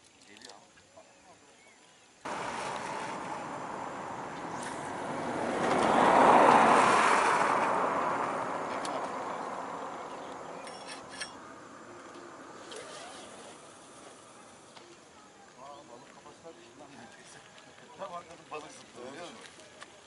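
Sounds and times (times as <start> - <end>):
vehicle passing: 2.3 - 14.7.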